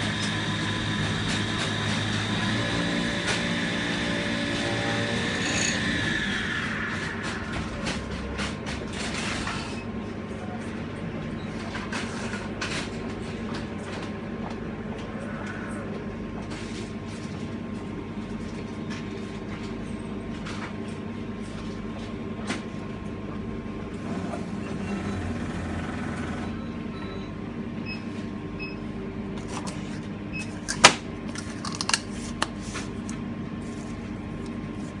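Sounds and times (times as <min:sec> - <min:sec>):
milkshake blending machine humming: 0:00.0 - 0:08.1, 0:23.6 - 0:26.7.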